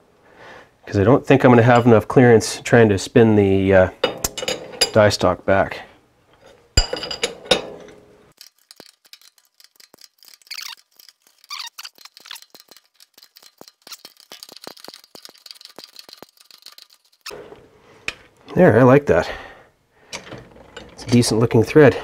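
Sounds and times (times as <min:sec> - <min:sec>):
metallic clank: 0:06.4 - 0:08.0
lathe gears clicking and rattling: 0:08.4 - 0:17.3.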